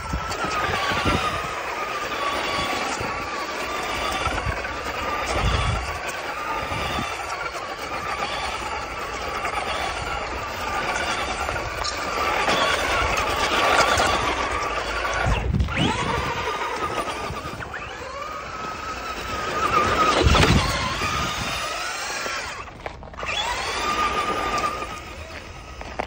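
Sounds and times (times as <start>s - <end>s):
toy car motor whining: 0.0s - 26.0s.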